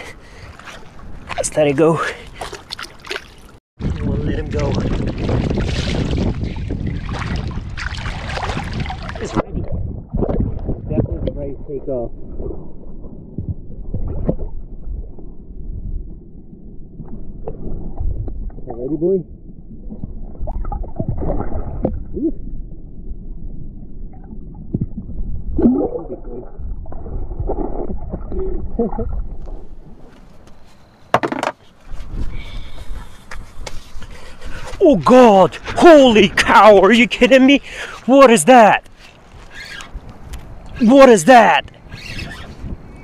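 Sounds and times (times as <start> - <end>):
underwater surf wash: 0.0 - 30.2
wind on microphone: 3.8 - 30.7, 31.8 - 36.9, 38.8 - 40.8, 41.6 - 43.0
muffled underwater sound: 24.1 - 29.8
dull knocks: 31.1 - 31.6.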